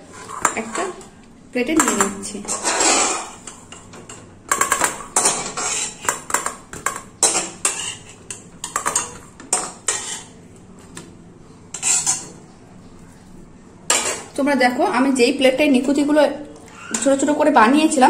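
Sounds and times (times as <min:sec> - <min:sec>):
metal spatula scraping metal pan: 0:01.8 - 0:03.8, 0:04.5 - 0:10.4, 0:11.7 - 0:12.4, 0:13.9 - 0:14.3.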